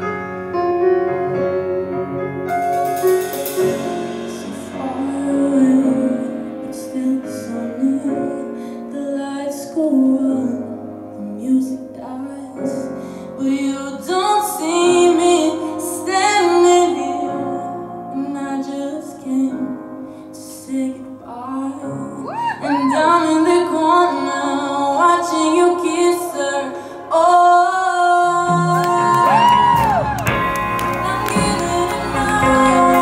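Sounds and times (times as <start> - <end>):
drums: 0.0 - 8.5, 28.4 - 33.0
woman singing: 3.6 - 33.0
electric guitar: 28.4 - 33.0.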